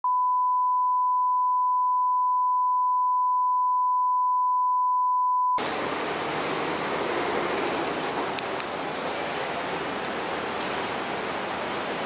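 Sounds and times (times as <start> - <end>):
single-pitch test tone: 0.0 - 5.6
loud even rush of noise: 5.6 - 12.0.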